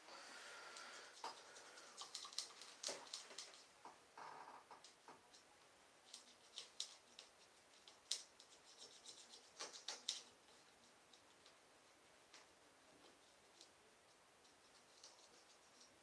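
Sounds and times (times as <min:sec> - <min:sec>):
paintbrush scratchy strokes: 0:06.0 - 0:11.0, 0:13.1 - 0:16.0.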